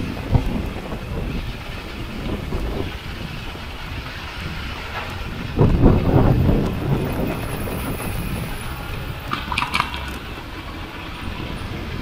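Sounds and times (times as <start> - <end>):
road and traffic noise: 0.0 - 12.0
wind buffeting microphone: 0.0 - 12.0
rattle of clicks: 8.9 - 10.4.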